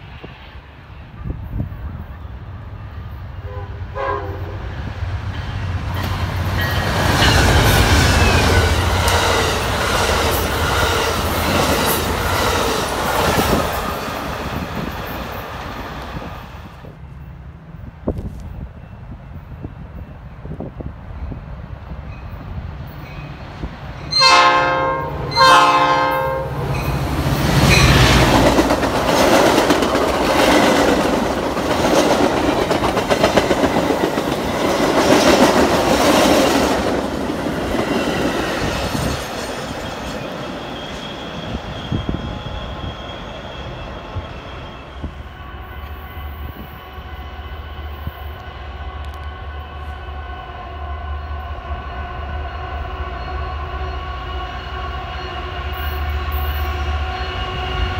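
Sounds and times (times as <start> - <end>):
distant train drone: 0.0 - 57.9
train wheel-and-rail rumble: 0.0 - 57.9
train horn blasts: 3.4 - 4.8, 24.0 - 28.3, 44.6 - 57.9.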